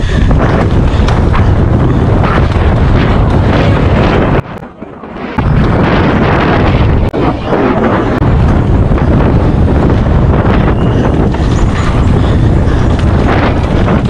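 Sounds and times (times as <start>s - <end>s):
bike knocks and rattles: 0.0s - 4.4s, 7.9s - 14.0s
tyre rumble: 0.0s - 14.0s
wind buffeting microphone: 0.0s - 14.0s.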